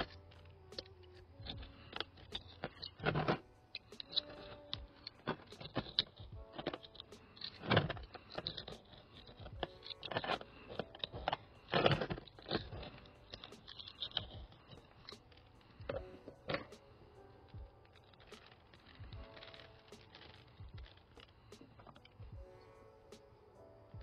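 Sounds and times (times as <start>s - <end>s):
gritty soil scraping and rattling: 0.0s - 23.0s.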